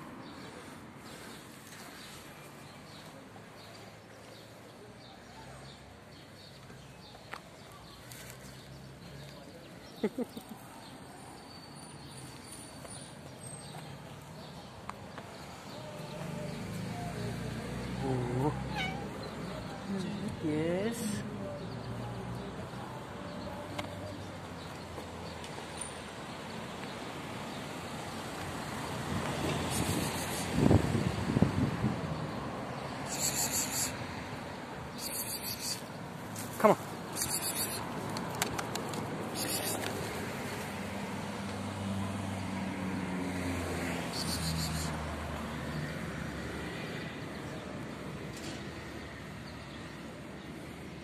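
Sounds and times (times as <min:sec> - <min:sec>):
distant road traffic: 0:00.0 - 0:51.0
vehicle engine hum: 0:35.0 - 0:48.6.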